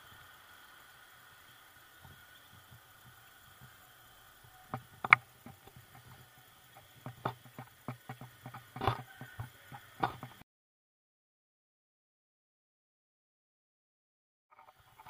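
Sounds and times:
bicycle rattling on paved road: 0.0 - 10.4
faint high hum: 0.0 - 10.4.

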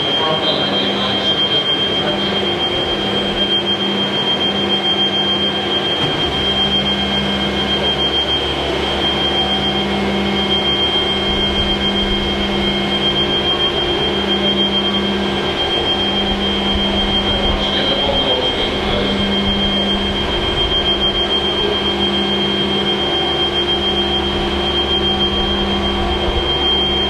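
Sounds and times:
machinery high-pitched whine: 0.0 - 27.0
machinery low hum: 0.0 - 27.0.

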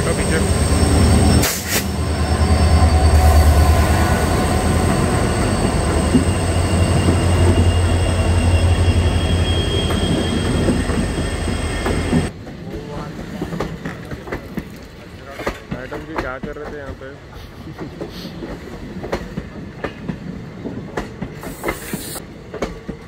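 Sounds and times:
high whining tones: 0.0 - 12.3
train rumbling past: 0.0 - 23.0.

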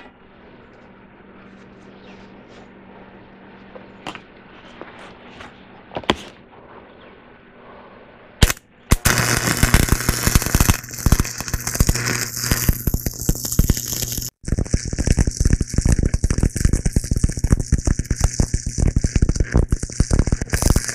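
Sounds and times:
welding arc crackling and sputtering: 8.4 - 20.9
welding arc strike crack: 8.4 - 20.9.

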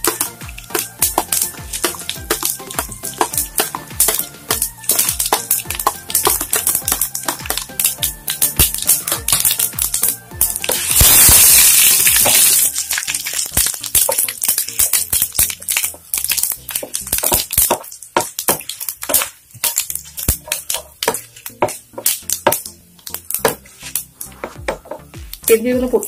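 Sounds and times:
spatula stirring in pan: 0.0 - 11.1, 11.8 - 24.6
spices crackling in hot oil: 0.0 - 26.0.

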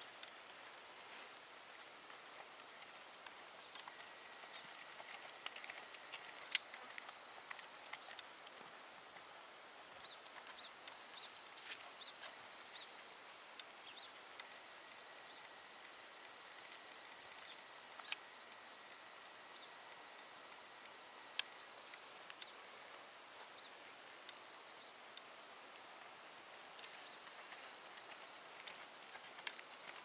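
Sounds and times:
distant horse hoofbeats on dirt: 1.7 - 14.6.

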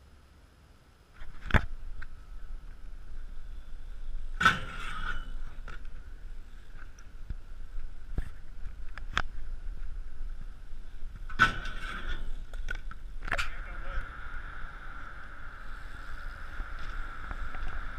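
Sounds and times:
bike rolling on concrete: 1.2 - 17.9
loud metal clanks: 4.3 - 5.6, 11.3 - 12.4.

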